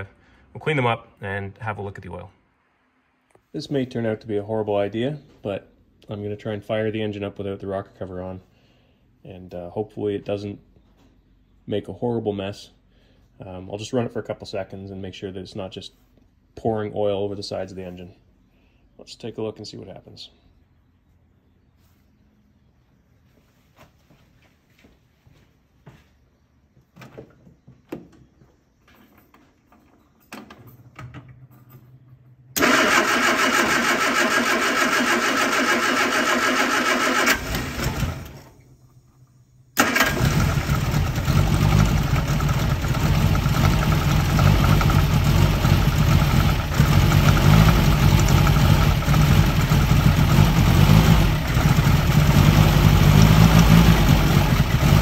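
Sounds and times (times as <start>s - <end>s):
starter motor cranking: 32.6s - 38.5s, 39.8s - 52.9s
car engine running roughly: 39.8s - 55.0s.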